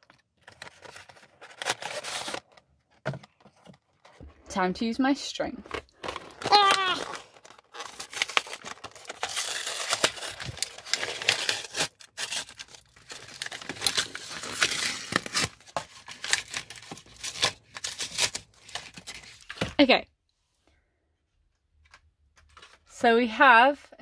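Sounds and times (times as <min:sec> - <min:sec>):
toy packaging tearing and crinkling: 0:00.0 - 0:04.2, 0:05.4 - 0:19.6.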